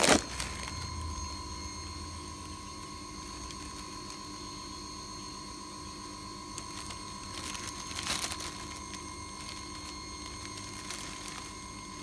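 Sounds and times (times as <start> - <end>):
plastic bag rustling: 0.0 - 0.9, 2.8 - 4.5, 6.0 - 12.0
high-toned whine: 0.0 - 12.0.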